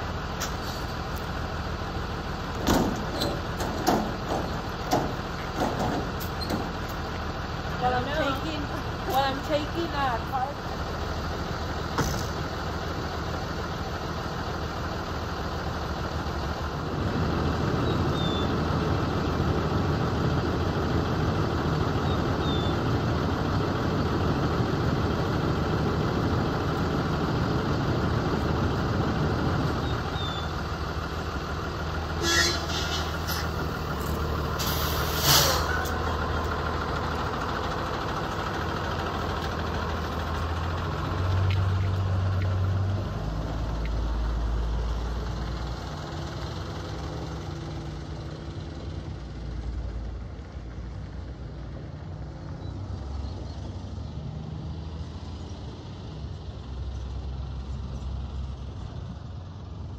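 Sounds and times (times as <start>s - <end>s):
bus engine running: 0.0s - 59.9s.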